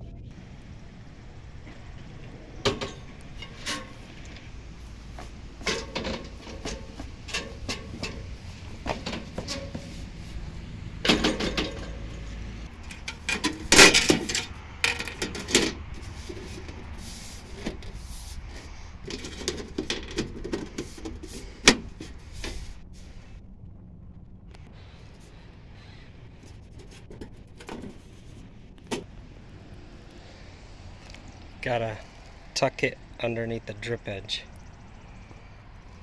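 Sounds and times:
knocks of climbing wooden ladder: 5.2s - 10.2s, 11.0s - 12.2s, 12.8s - 16.8s.

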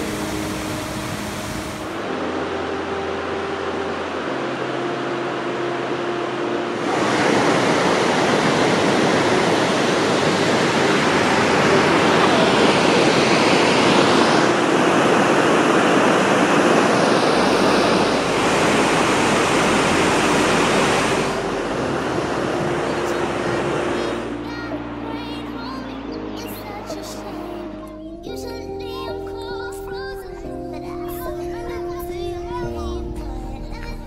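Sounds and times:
stream and waterfall rushing: 0.0s - 27.8s.

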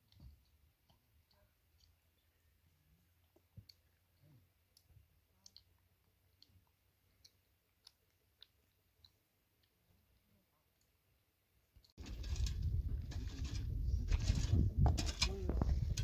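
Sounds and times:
faint high clicks and ticks: 0.0s - 11.0s.

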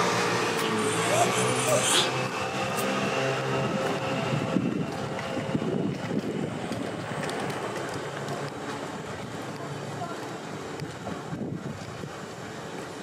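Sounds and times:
wind buffeting microphone: 3.4s - 9.8s, 10.6s - 12.8s.

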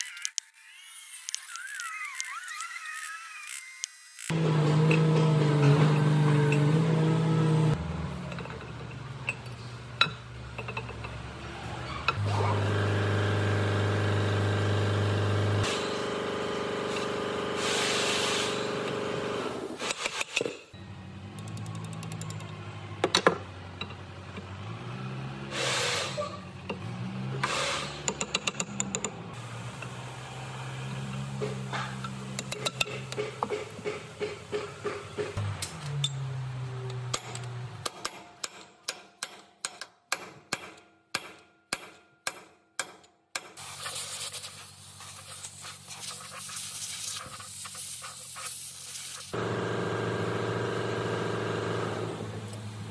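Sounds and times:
steel parts clinking and tapping: 8.2s - 11.2s, 21.4s - 24.5s, 28.0s - 29.2s, 31.7s - 34.6s, 35.6s - 43.6s.

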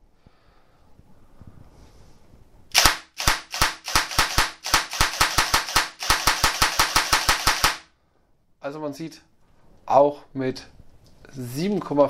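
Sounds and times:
airsoft gearbox clacking shots: 2.7s - 7.8s.

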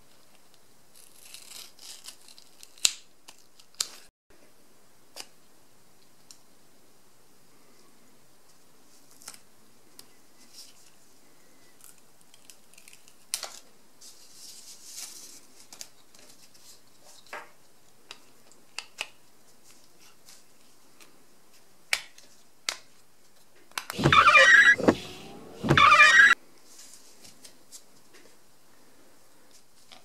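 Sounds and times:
caliper beam scraping slide: 23.9s - 26.4s.

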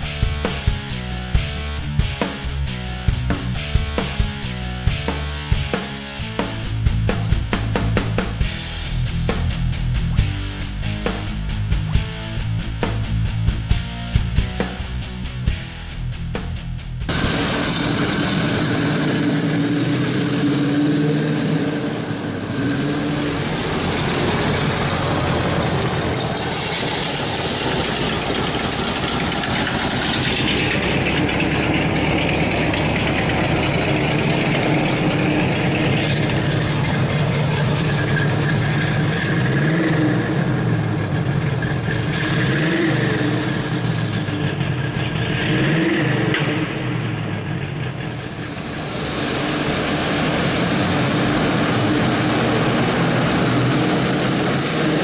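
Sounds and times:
car engine idling: 17.0s - 55.0s
car engine revving: 17.1s - 55.0s.

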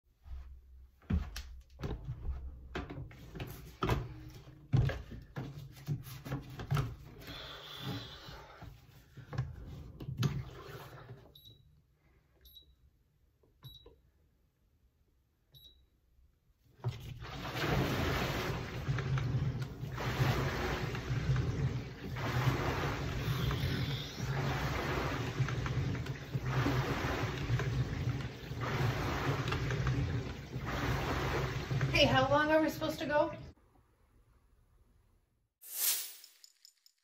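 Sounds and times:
water rowing machine swishing: 1.9s - 11.4s, 16.8s - 33.2s.

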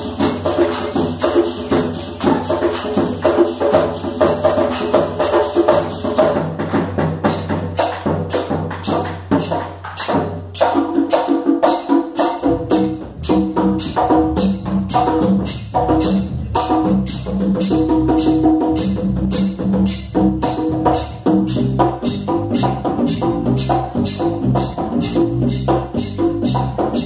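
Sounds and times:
congas: 0.0s - 27.0s
electric bass: 12.4s - 27.0s.

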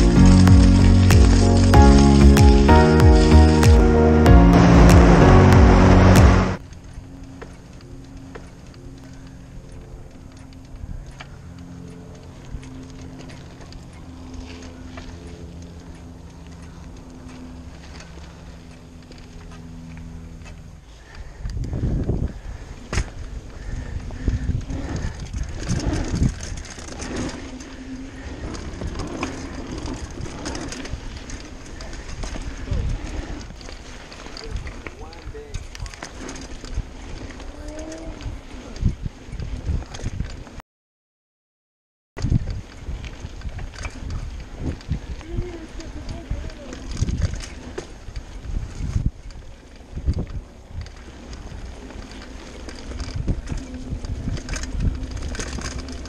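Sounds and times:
bike thumps and rattles: 0.0s - 3.8s, 22.8s - 27.8s
bike tyres on wooden boardwalk: 0.0s - 40.6s, 42.2s - 56.0s
rattling bike parts: 20.1s - 40.4s, 48.9s - 56.0s
wind buffeting microphone: 21.1s - 40.6s, 42.2s - 56.0s.

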